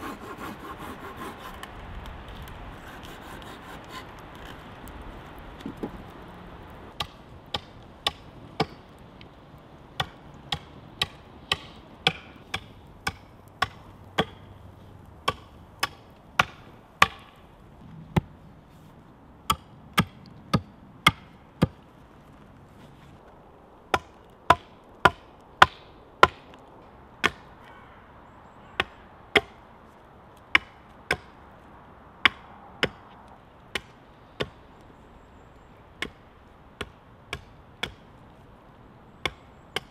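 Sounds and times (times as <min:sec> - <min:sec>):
axe chopping wood: 0:10.0 - 0:14.4, 0:15.2 - 0:17.4.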